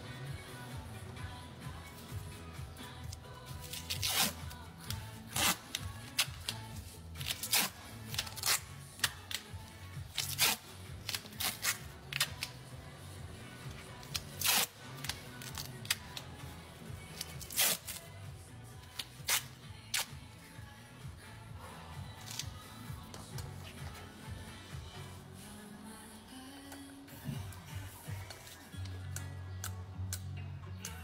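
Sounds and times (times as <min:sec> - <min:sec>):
background music: 0:00.0 - 0:31.0
duct tape ripping: 0:03.6 - 0:09.5, 0:10.1 - 0:12.6, 0:14.0 - 0:16.3, 0:17.1 - 0:18.1, 0:18.9 - 0:20.2, 0:22.2 - 0:22.6.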